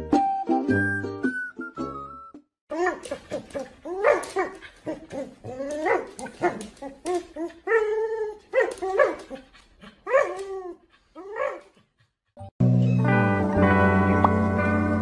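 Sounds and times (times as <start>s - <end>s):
puppy barking and yipping: 2.7s - 11.7s.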